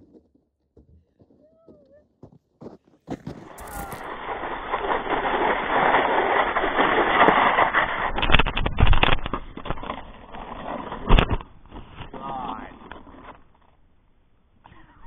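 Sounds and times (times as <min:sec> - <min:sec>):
sled bumps: 0:00.0 - 0:13.9
sled rushing over snow: 0:03.1 - 0:13.8.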